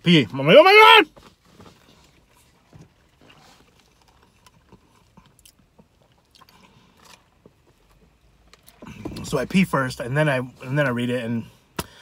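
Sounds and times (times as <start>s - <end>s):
person chewing food: 2.3s - 8.0s.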